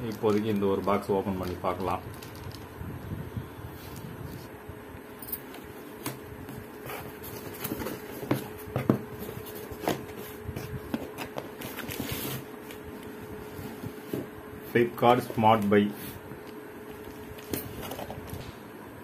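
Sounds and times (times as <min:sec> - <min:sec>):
cardboard rustling and scraping: 0:05.6 - 0:16.2.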